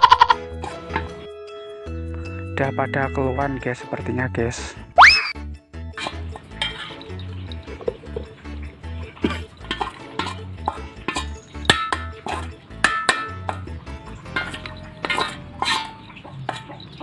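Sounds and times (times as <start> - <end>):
background music: 0.0 - 17.0
metal spoon scraping metal bowl: 5.9 - 7.5, 9.2 - 17.0.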